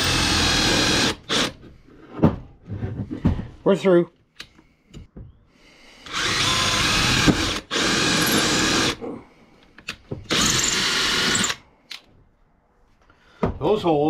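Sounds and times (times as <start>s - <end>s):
cordless drill boring through wood: 0.0s - 1.6s, 6.0s - 9.0s, 10.3s - 11.6s.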